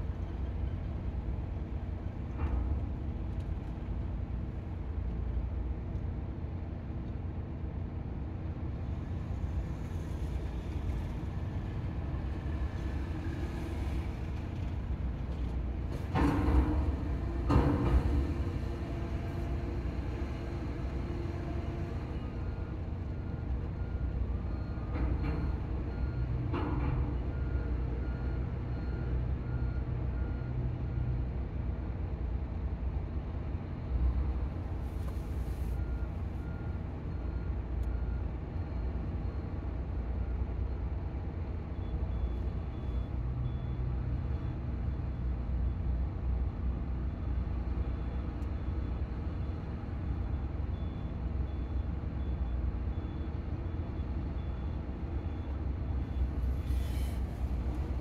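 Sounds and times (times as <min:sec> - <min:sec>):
diesel engines running: 0:00.0 - 0:58.0
reversing alarm beeping: 0:48.0 - 0:58.0.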